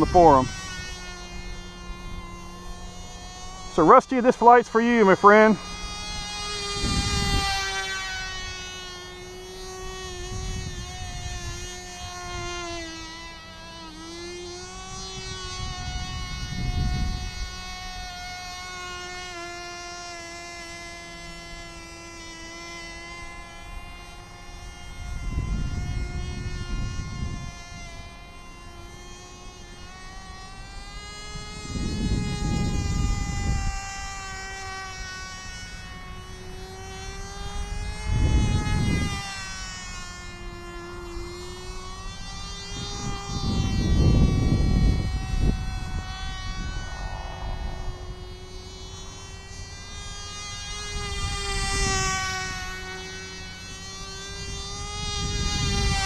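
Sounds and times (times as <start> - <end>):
model engine high whine: 0.0 - 56.0
low rumbling bursts: 44.7 - 50.8.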